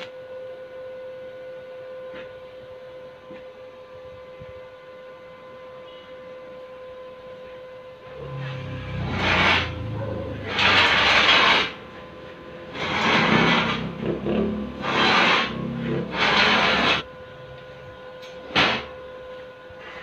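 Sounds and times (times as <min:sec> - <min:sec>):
arc welding crackle: 0:08.2 - 0:17.0.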